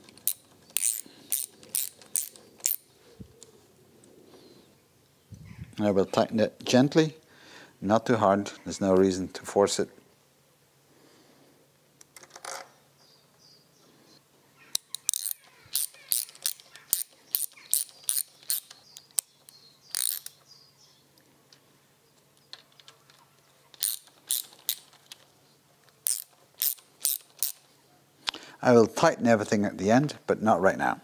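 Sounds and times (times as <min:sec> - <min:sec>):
hand ratchet clicking: 0:00.0 - 0:02.9, 0:14.7 - 0:20.4, 0:23.7 - 0:25.2, 0:26.0 - 0:27.6.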